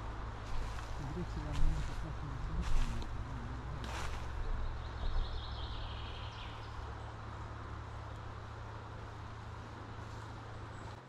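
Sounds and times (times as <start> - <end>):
wind rumble on microphone: 0.0 - 7.6.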